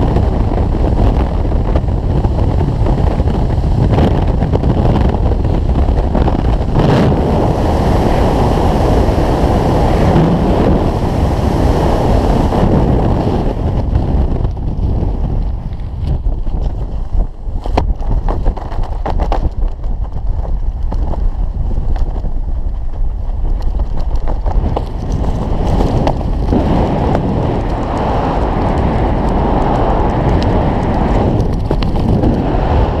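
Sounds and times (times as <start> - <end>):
wind buffeting microphone: 0.0 - 33.0
parachute cracks and flutters: 12.6 - 33.0.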